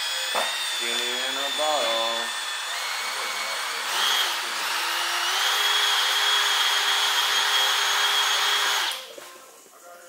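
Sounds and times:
power polisher whining: 0.0 - 9.0.

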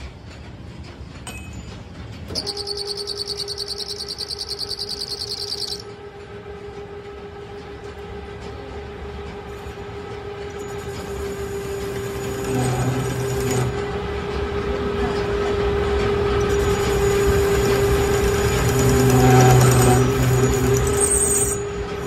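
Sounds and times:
high ringing tone: 2.3 - 5.9.

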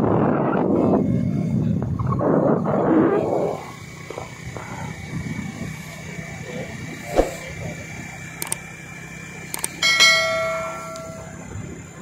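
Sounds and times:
street noise: 0.0 - 12.0
sharp thump: 7.1 - 7.5
bell chime: 9.8 - 11.5.

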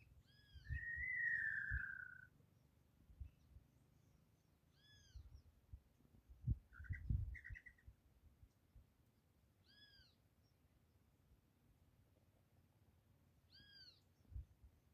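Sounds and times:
whistled bird-like calls: 0.3 - 2.3.

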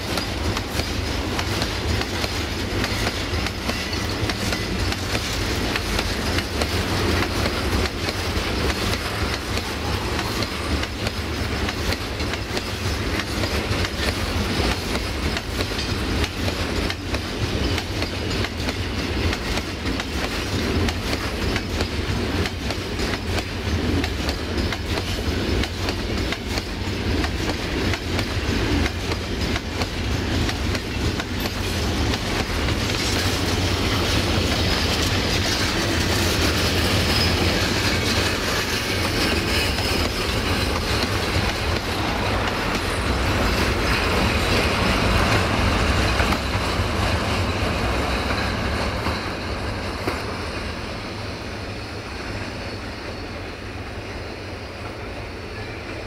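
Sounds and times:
steel wheels clattering over rail joints: 0.0 - 51.4
freight train rumbling past: 0.0 - 56.0
wheel squeal: 36.2 - 41.3.

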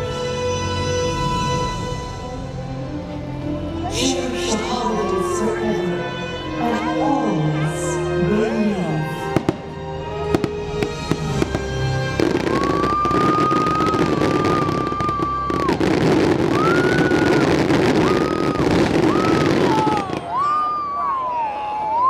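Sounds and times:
show music: 0.0 - 22.0
fireworks crackling barrage: 9.0 - 21.2
firework bangs: 10.4 - 20.6.

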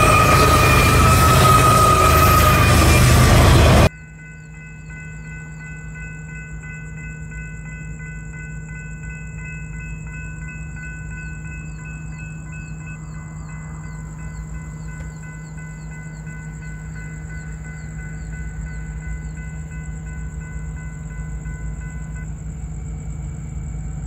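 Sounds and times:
train air horn: 0.0 - 3.9
diesel locomotive passing: 0.0 - 24.0
insects trilling and chirping: 0.0 - 24.0.

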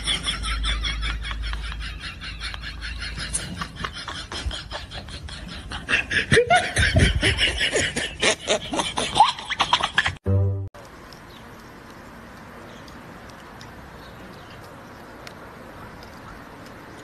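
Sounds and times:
people laughing: 0.0 - 10.2.

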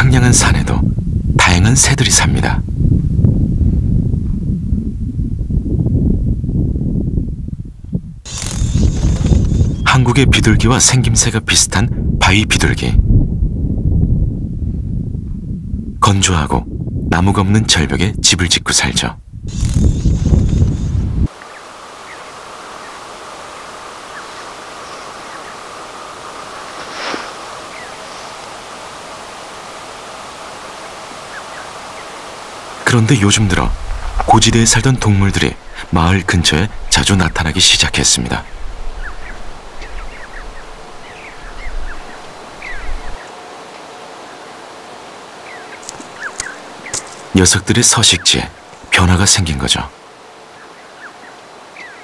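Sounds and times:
steady outdoor noise: 0.0 - 52.0
small birds chirping: 8.3 - 10.2, 19.5 - 49.4, 50.4 - 52.0
steady hiss: 8.3 - 12.9, 18.7 - 52.0
low rumble: 33.3 - 43.2.

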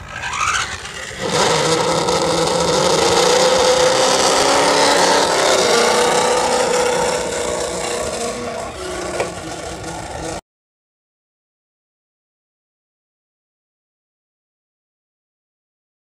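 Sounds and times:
engine revving and running: 0.0 - 10.4.

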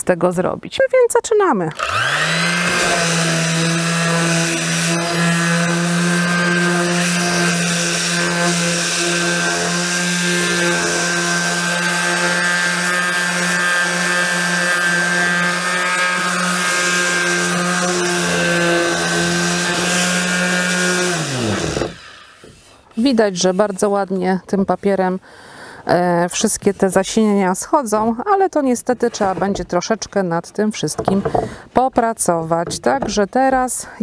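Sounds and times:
electric sander on wood: 1.7 - 24.3.

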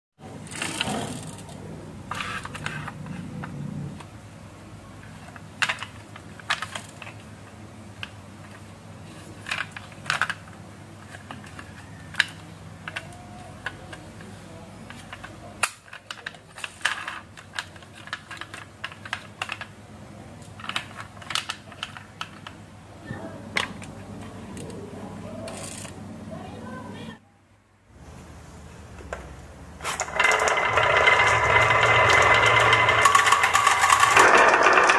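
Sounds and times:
steady low hum: 0.2 - 15.6, 22.3 - 34.2
toy clicks and knocks: 30.0 - 34.9.

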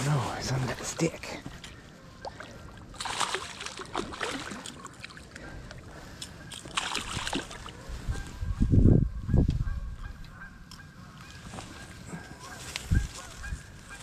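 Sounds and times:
fish thrashing and splashing: 2.2 - 5.4, 6.5 - 7.8.

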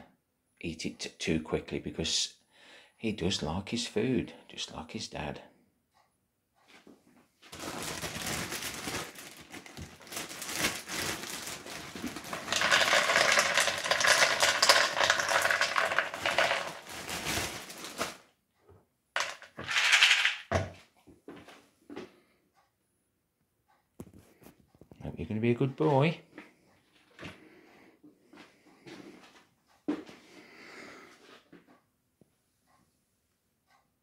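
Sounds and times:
dry kibble rattling into plastic bowl: 7.6 - 18.2, 19.2 - 20.7.

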